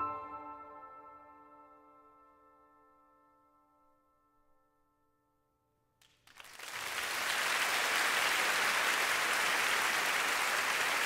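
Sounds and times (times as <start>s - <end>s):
concert audience applause: 6.0s - 11.0s.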